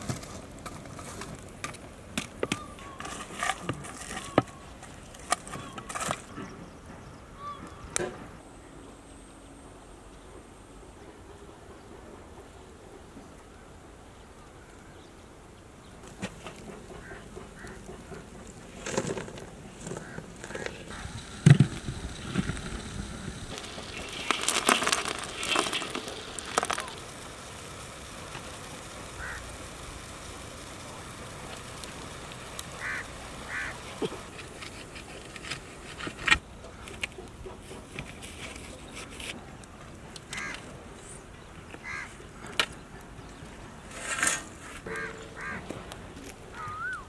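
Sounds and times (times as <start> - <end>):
charcoal rattling on metal lid: 16.3 - 36.2, 43.9 - 45.7
short bird calls: 29.2 - 29.5, 32.8 - 34.0, 46.6 - 47.0.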